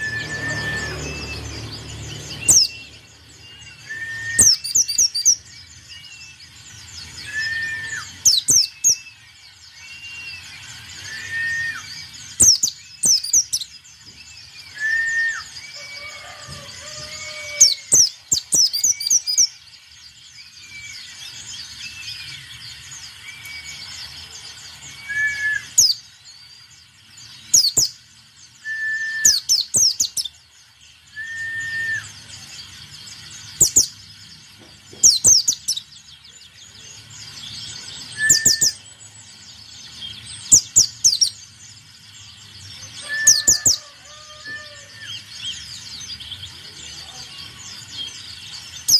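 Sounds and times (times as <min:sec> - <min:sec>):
bird whistled notes: 0:00.0 - 0:06.4, 0:07.2 - 0:13.7, 0:14.4 - 0:16.5, 0:24.9 - 0:26.0, 0:28.6 - 0:30.3, 0:31.1 - 0:32.2, 0:38.1 - 0:38.8, 0:43.0 - 0:45.3
bird singing high descending notes: 0:00.0 - 0:48.9.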